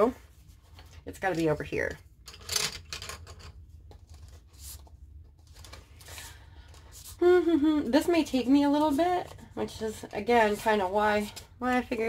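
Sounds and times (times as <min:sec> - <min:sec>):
pencils clicking and rustling: 0:02.2 - 0:07.2.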